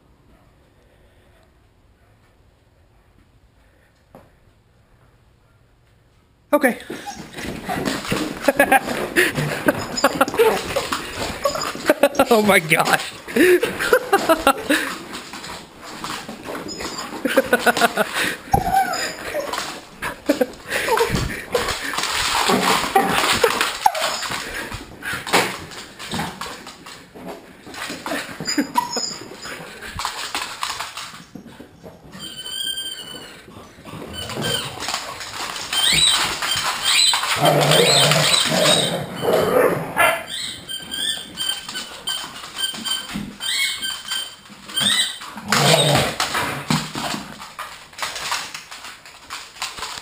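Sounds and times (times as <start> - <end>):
dogs squealing: 6.9 - 12.2, 16.5 - 24.5, 28.0 - 29.8, 32.1 - 46.4
dogs whining and whimpering: 6.9 - 12.2, 16.0 - 24.5, 27.8 - 46.4
high rising squeaks: 16.4 - 17.3, 32.0 - 39.5, 40.2 - 46.3.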